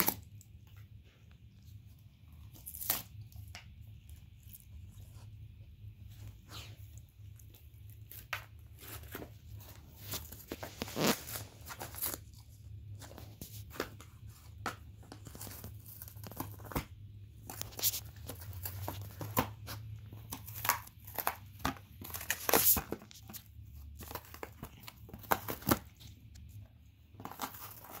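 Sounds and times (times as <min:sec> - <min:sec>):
dog tearing cardboard: 0:17.4 - 0:26.1.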